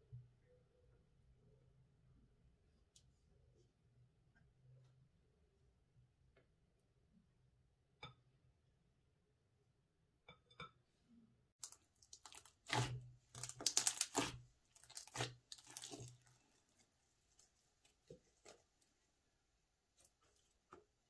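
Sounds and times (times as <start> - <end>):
slime squelching and popping: 11.6 - 18.6.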